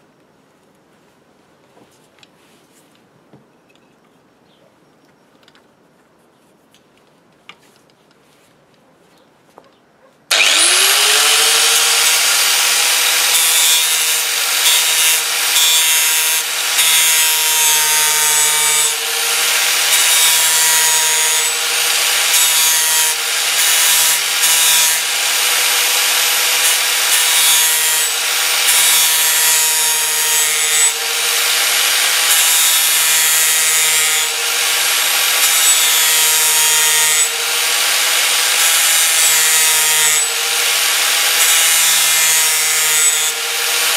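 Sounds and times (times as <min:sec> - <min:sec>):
angle grinder grinding steel: 0:10.3 - 0:43.9.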